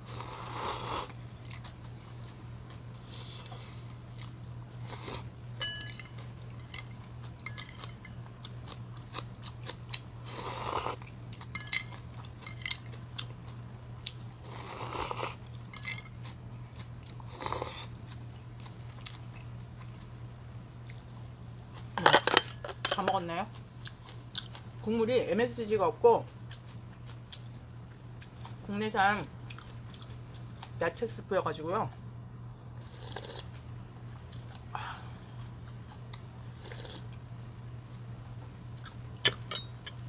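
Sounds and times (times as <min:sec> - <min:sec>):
steady low hum: 0:00.0 - 0:40.0
wet chewing: 0:01.0 - 0:05.2, 0:23.8 - 0:24.7, 0:29.4 - 0:30.8, 0:35.3 - 0:37.2.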